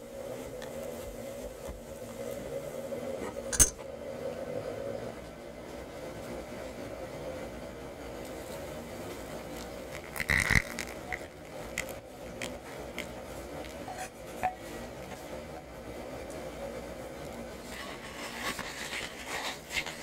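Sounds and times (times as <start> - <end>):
steady low hum: 0.0 - 20.0
glass bowl clinking: 3.5 - 3.8, 13.9 - 14.7.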